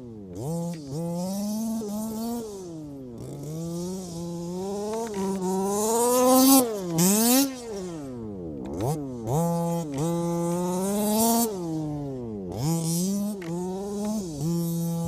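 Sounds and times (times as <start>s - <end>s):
two-stroke engine revving: 0.0s - 15.0s.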